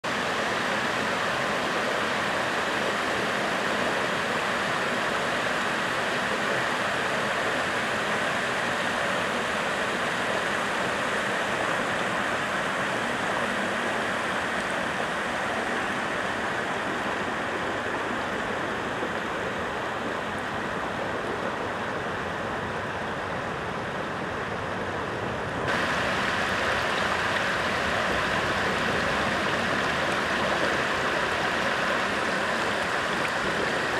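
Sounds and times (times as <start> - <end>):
river water rushing over weir: 0.0 - 33.9.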